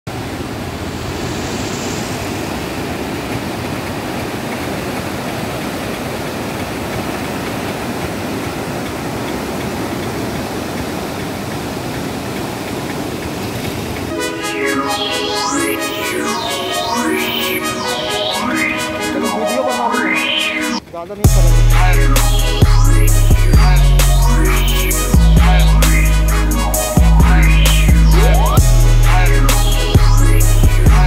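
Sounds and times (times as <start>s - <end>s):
water rushing from spillway: 0.1s - 14.1s
electronic music: 14.1s - 31.0s.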